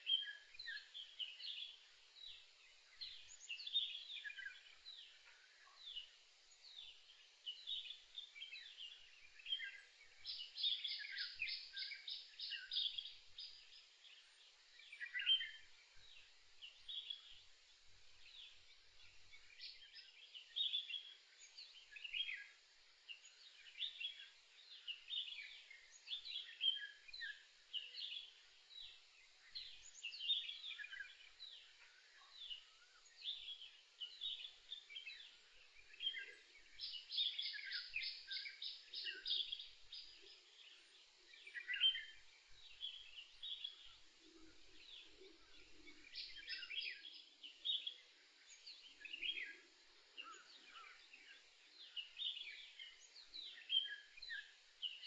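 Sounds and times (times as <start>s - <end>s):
birds chirping and calling: 35.9s - 40.7s.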